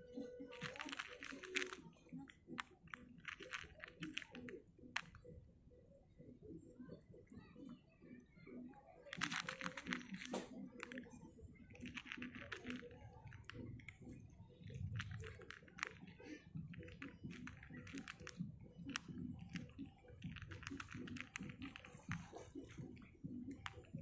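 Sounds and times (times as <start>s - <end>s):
cat crunching dry kibble: 0.4s - 5.1s, 9.1s - 14.0s, 14.7s - 24.0s.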